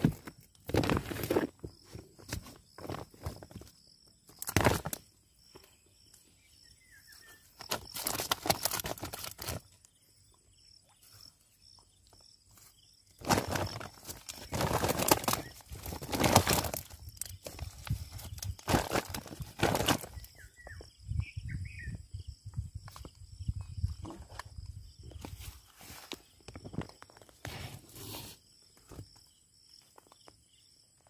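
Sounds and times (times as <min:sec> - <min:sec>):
plastic sack rustling: 0:00.0 - 0:01.6, 0:07.6 - 0:09.6, 0:13.2 - 0:20.3.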